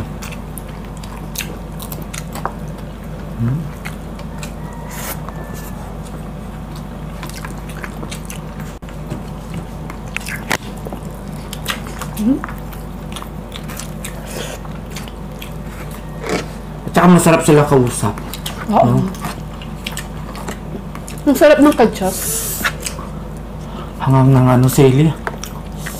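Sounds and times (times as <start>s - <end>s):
chewing and wet smacking: 0.0s - 23.7s, 24.4s - 25.9s
steady low hum: 0.0s - 25.9s
person humming: 3.4s - 3.8s.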